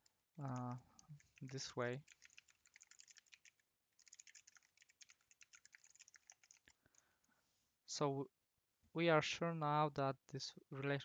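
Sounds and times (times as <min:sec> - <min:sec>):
typing on computer keyboard: 0:00.4 - 0:07.0.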